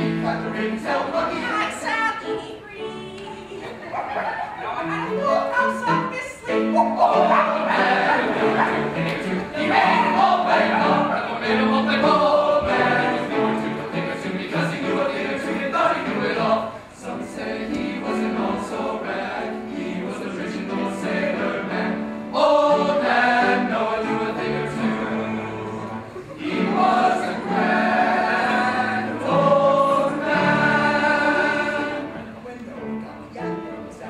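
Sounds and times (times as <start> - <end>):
men's choir singing gospel: 0.0 - 1.9, 6.0 - 32.3
piano accompaniment: 0.0 - 34.0.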